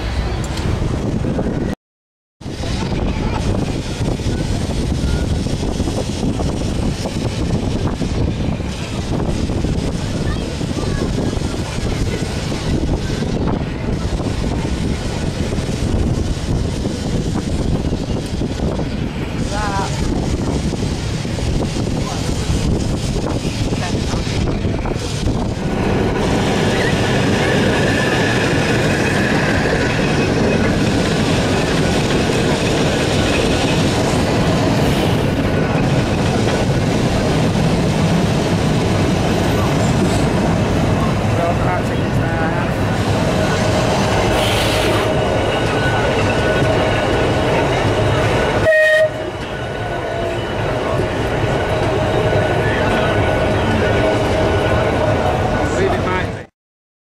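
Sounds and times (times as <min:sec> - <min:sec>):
tram wheels rumbling on rail: 0:00.0 - 0:01.8, 0:02.4 - 0:56.5
wind on microphone: 0:00.0 - 0:01.8, 0:02.4 - 0:56.4.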